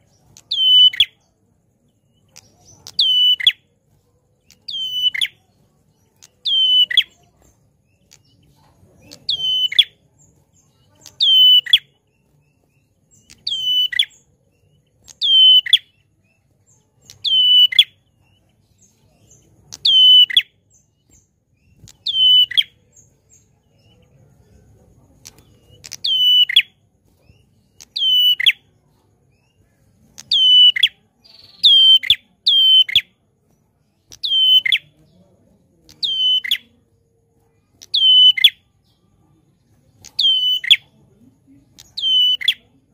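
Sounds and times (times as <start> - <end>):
songbird calling downward notes: 0.0 - 1.3, 9.0 - 10.0, 17.0 - 18.0, 27.6 - 28.7, 34.1 - 35.0, 35.9 - 36.8, 40.0 - 40.9.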